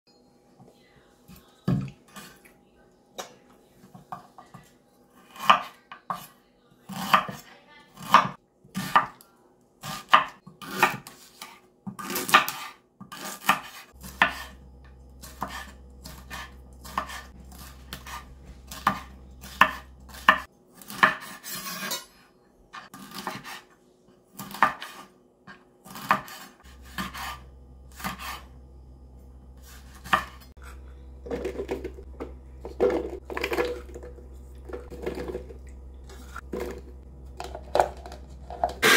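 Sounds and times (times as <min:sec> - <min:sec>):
knife chopping on wooden board: 0:15.3 - 0:21.9, 0:22.9 - 0:23.6, 0:24.4 - 0:25.0, 0:25.9 - 0:28.4, 0:29.9 - 0:30.4.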